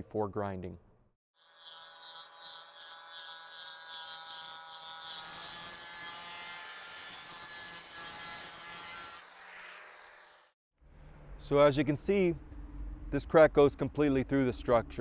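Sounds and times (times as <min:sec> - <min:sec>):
electric grinder on concrete: 0:01.4 - 0:10.6.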